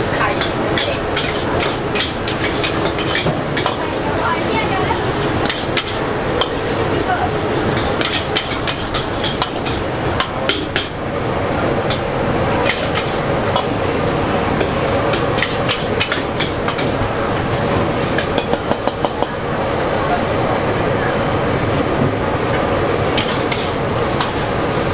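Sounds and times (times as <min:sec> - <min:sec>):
food frying: 0:00.0 - 0:19.8, 0:22.2 - 0:24.9
metal spatula scraping a wok: 0:00.4 - 0:03.8, 0:07.7 - 0:10.3, 0:12.6 - 0:18.4, 0:23.2 - 0:24.6.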